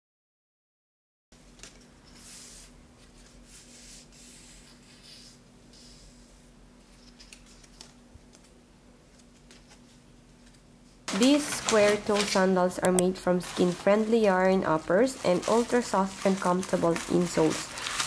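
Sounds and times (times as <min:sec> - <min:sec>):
faint steady hum: 0:01.4 - 0:18.0
paper and cardboard rustling: 0:09.1 - 0:18.0.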